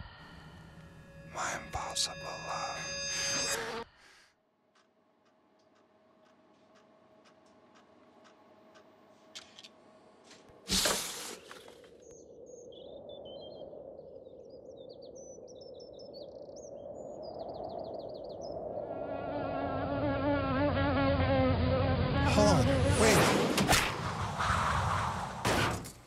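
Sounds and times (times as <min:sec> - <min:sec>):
housefly buzzing: 0:02.1 - 0:03.9, 0:19.3 - 0:23.0.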